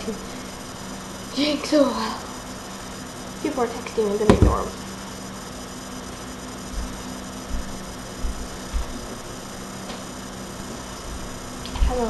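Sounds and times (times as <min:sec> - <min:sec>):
electrical hum and hiss: 0:00.0 - 0:12.0
soft dull low thumps: 0:06.8 - 0:09.2.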